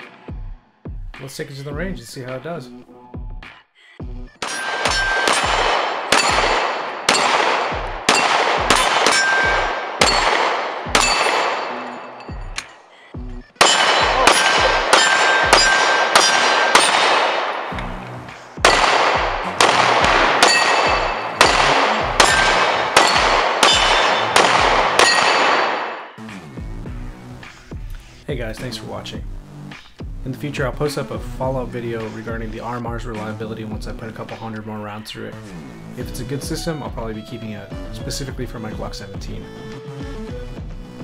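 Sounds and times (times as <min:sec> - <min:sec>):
electronic music with steady beat: 0:12.3 - 0:16.0.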